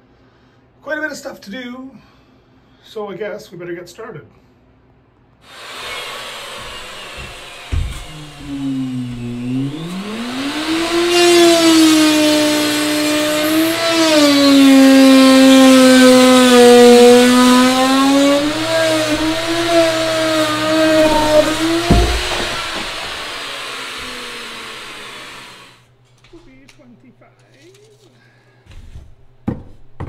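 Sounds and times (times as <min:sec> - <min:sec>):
router cutting wood: 0:05.5 - 0:25.8.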